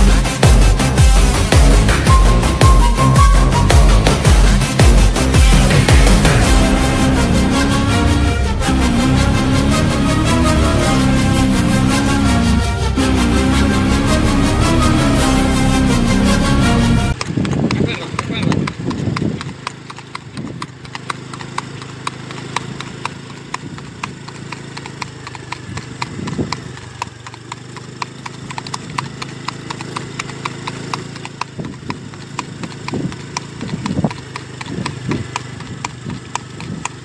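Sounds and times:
horse hooves on asphalt: 0.0 - 6.8, 17.1 - 37.0.

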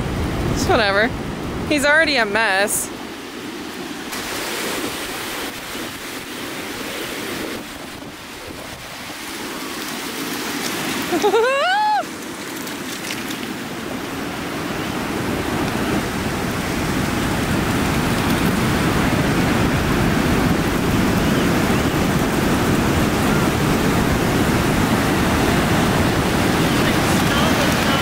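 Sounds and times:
ocean surf washing up beach: 0.0 - 28.0.

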